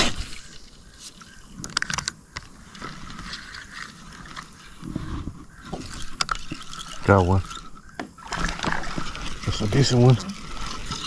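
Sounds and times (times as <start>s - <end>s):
fishing reel gears whirring: 5.5s - 11.0s.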